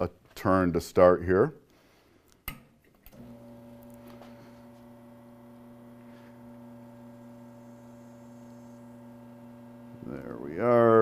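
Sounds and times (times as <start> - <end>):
espresso machine pump humming: 3.1 - 10.4.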